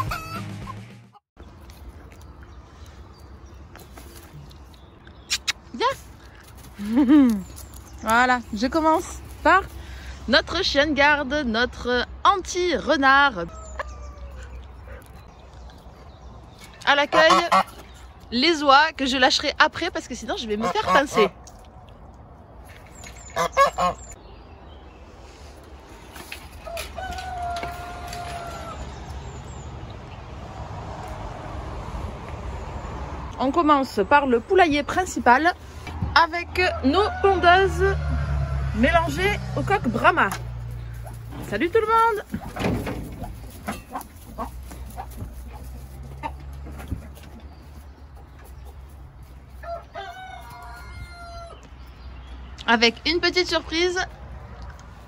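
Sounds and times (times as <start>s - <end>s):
chickens clucking: 13.5s - 18.2s, 40.2s - 51.8s
goose honking: 17.1s - 17.8s, 20.5s - 21.3s, 23.4s - 24.1s
rooster crowing: 26.6s - 28.9s, 36.7s - 38.8s, 49.6s - 51.6s.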